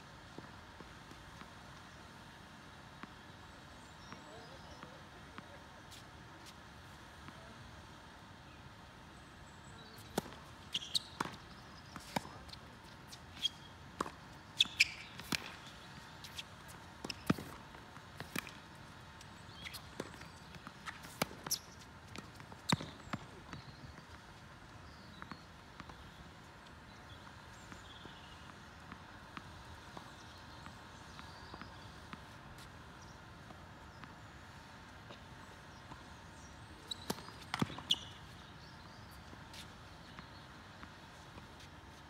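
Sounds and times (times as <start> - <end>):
ball bouncing on hard court: 19.7 - 23.8.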